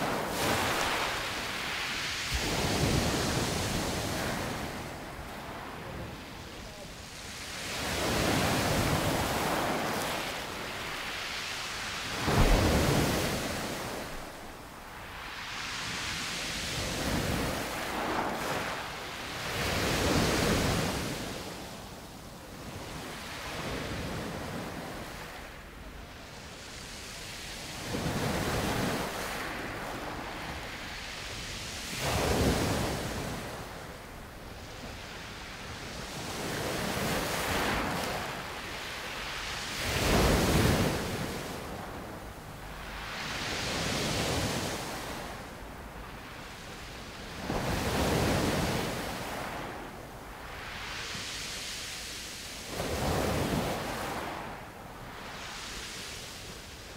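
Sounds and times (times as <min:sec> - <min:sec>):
sea waves breaking on shore: 0:00.0 - 0:56.9.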